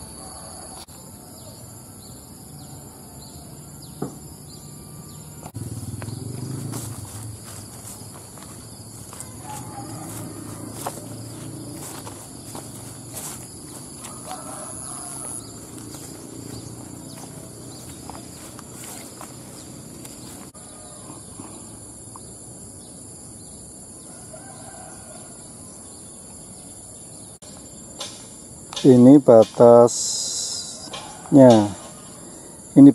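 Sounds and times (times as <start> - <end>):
insects droning: 0.0 - 32.9
footsteps crunching on stones: 5.4 - 20.6.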